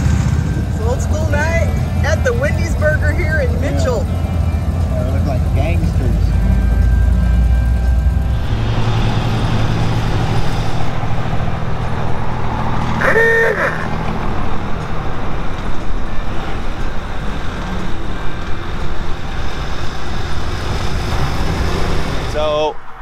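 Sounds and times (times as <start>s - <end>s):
car engine running: 0.0s - 22.5s
road and wind noise: 0.0s - 23.0s
car horn honk: 12.8s - 14.0s.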